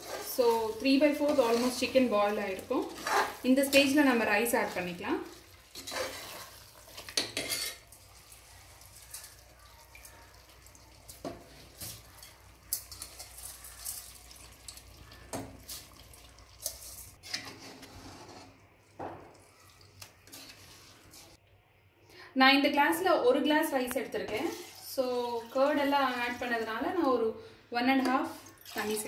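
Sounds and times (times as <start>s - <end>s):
ladle scraping metal pot: 0.0s - 8.0s, 16.6s - 18.6s, 20.0s - 21.4s.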